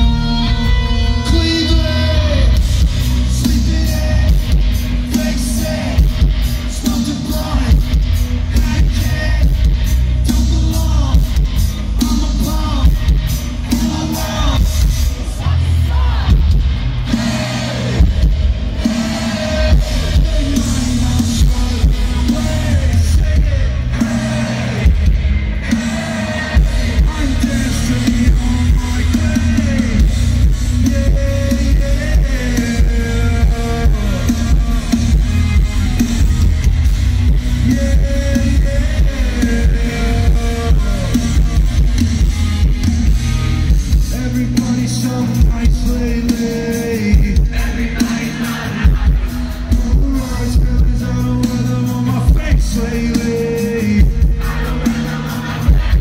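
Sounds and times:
person singing: 0:00.0 - 0:09.7, 0:18.8 - 0:35.5
bass guitar: 0:00.0 - 0:56.0
drums: 0:00.0 - 0:56.0
electric guitars: 0:00.0 - 0:56.0.

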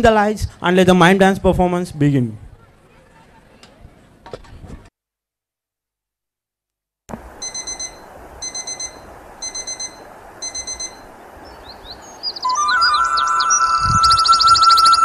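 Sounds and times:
alarm clock high beeps: 0:07.4 - 0:11.0, 0:12.5 - 0:15.0.

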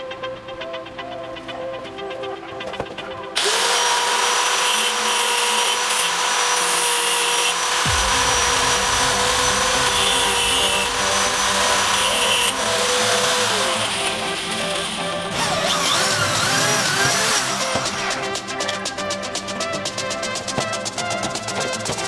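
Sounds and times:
angle grinder grinding steel: 0:03.4 - 0:19.8.

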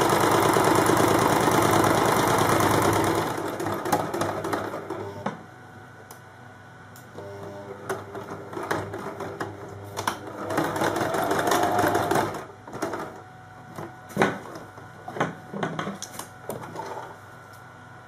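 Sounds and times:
sewing machine stitching: 0:00.0 - 0:05.2, 0:07.2 - 0:13.2.

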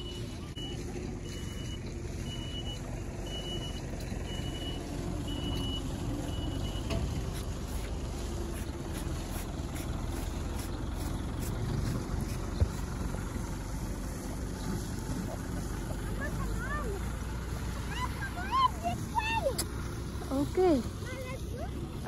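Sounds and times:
reversing alarm beeping: 0:00.0 - 0:07.0
low steady rumble: 0:00.0 - 0:22.0.

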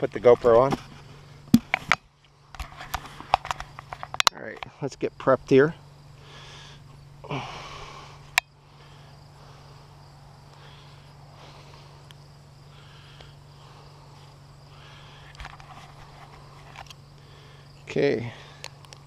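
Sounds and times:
steady low hum: 0:00.0 - 0:19.0
breathy exhale: 0:06.2 - 0:15.4, 0:17.2 - 0:18.8.

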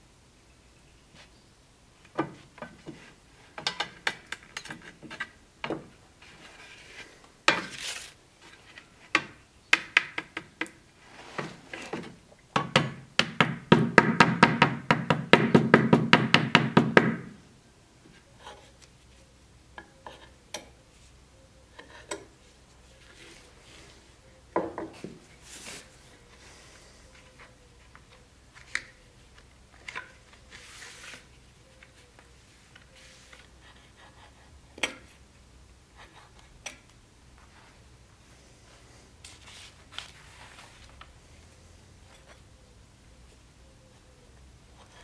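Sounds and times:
tools knocking on workbench: 0:24.6 - 0:25.2.

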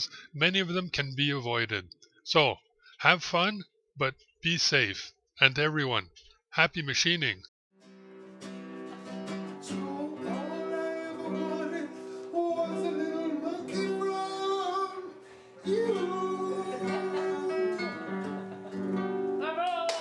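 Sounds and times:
strummed acoustic guitar: 0:07.8 - 0:19.4
person singing: 0:09.7 - 0:18.7.

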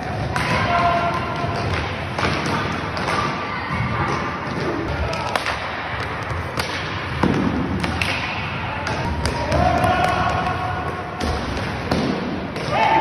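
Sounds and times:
indoor hall noise: 0:00.0 - 0:13.0
sticks cracking against puck: 0:06.5 - 0:10.6.

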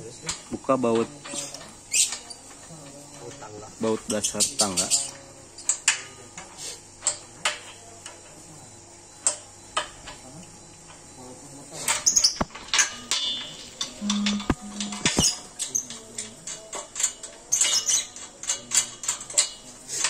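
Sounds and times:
wrenches clinking on metal: 0:11.8 - 0:20.0.

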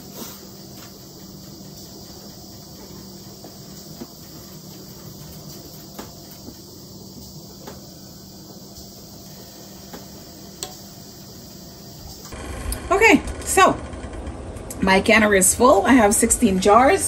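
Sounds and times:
background hiss: 0:00.0 - 0:12.4
low hum: 0:12.3 - 0:17.0.

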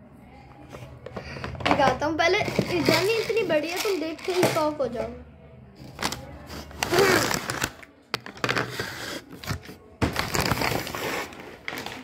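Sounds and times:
paper bag crinkling: 0:05.8 - 0:12.0.

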